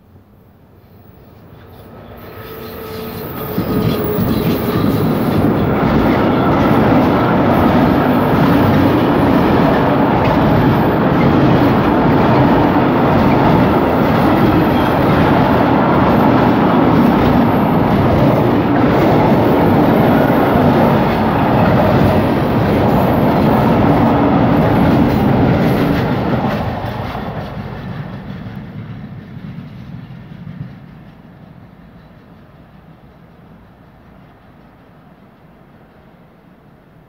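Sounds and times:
freight train wheels rumbling: 0.0s - 37.0s.

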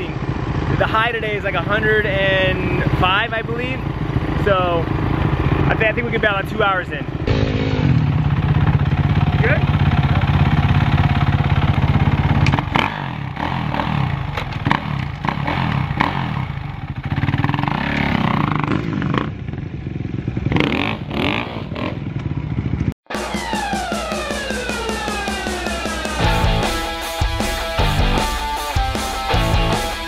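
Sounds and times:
dirt bike engine revving: 0.0s - 30.0s
music: 23.1s - 30.0s.

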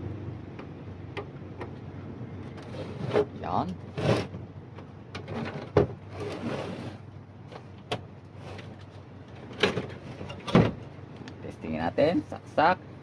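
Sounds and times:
plastic casing sliding and scraping: 2.5s - 4.4s, 5.2s - 7.1s.

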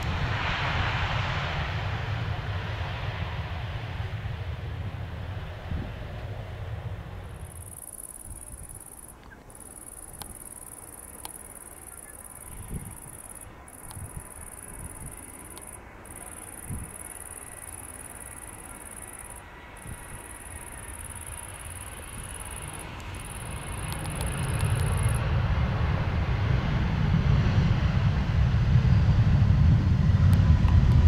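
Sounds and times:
cricket buzzing: 7.3s - 25.2s
low rumble: 19.3s - 31.0s.

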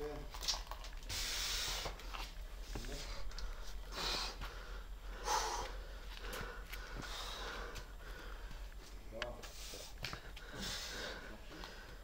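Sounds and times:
climber breathing hard: 2.9s - 12.0s.

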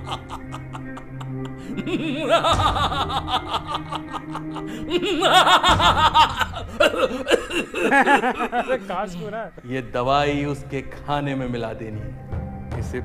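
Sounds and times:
man laughing: 0.0s - 9.7s
background music: 0.0s - 13.0s.

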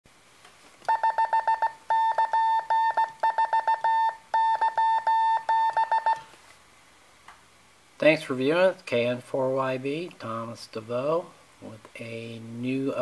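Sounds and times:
morse code beeps: 0.9s - 6.2s.

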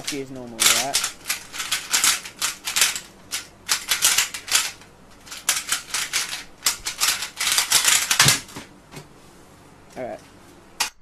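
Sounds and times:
plastic puzzle cube clicking: 0.6s - 8.4s.

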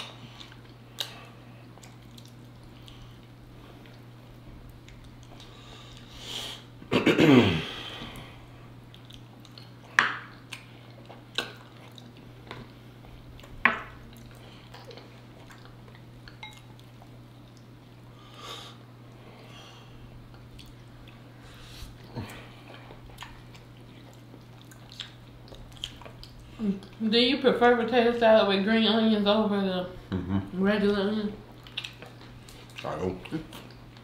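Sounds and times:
lip smacks and chewing: 0.4s - 6.1s, 8.9s - 17.8s, 20.2s - 27.0s, 31.5s - 34.0s.

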